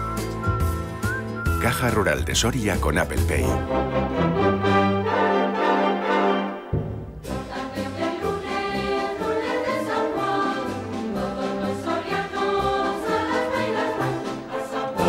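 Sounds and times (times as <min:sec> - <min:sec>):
brass band playing: 0:03.6 - 0:08.0
crowd singing along: 0:07.2 - 0:15.0.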